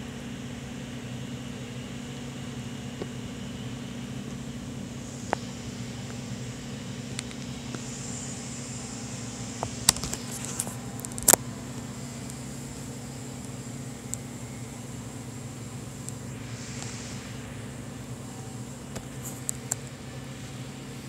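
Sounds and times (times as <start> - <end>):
low hum: 0.0 - 21.0.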